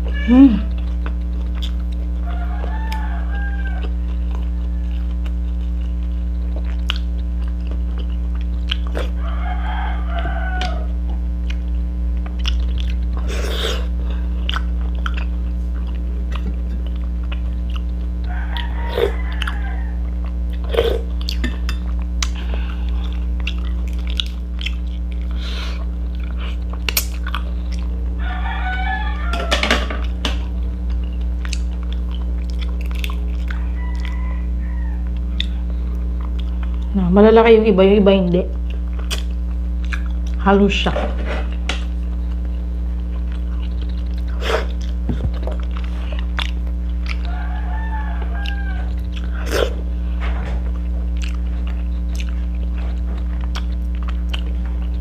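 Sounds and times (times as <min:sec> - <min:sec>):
chewing and eating sounds: 0:00.0 - 0:37.0, 0:38.5 - 0:40.4, 0:41.2 - 0:55.0
steady low hum: 0:00.0 - 0:55.0
rooster crowing: 0:02.2 - 0:05.2, 0:09.0 - 0:11.0, 0:18.2 - 0:20.2, 0:28.2 - 0:30.2, 0:33.4 - 0:35.3, 0:47.0 - 0:49.5.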